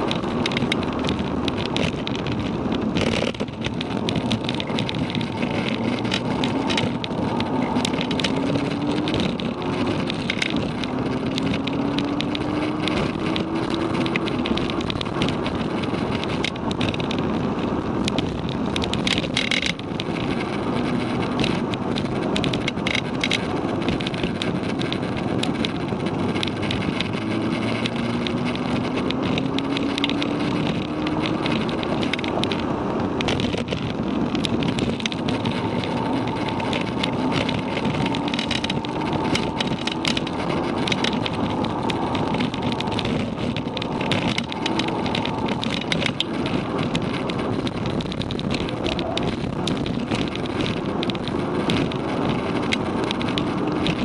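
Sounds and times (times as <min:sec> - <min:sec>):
clicks and rattles: 0:00.0 - 0:54.0
road and wind noise: 0:00.0 - 0:54.0
car engine revving up: 0:26.0 - 0:50.0.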